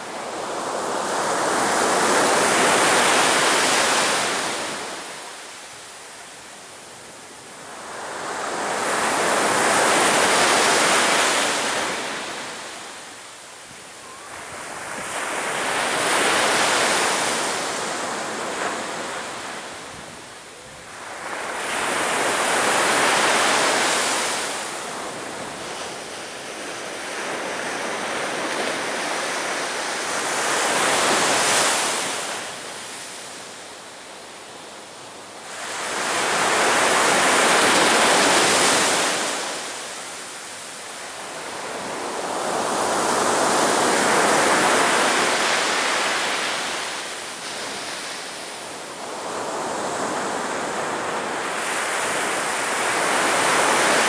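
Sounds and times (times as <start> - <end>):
sea waves breaking on beach: 14.2 - 33.6, 35.4 - 54.0.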